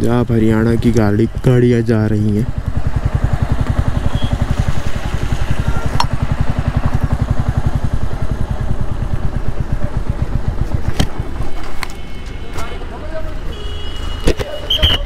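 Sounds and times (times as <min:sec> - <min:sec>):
motorcycle engine thumping: 0:02.5 - 0:12.4.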